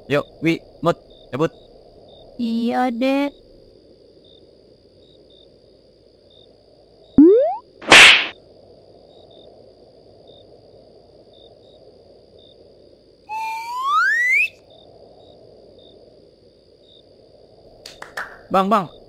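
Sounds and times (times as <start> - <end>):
forest night ambience: 0.0 - 19.0
cartoon whistle rising in pitch: 7.2 - 7.6, 13.3 - 14.6.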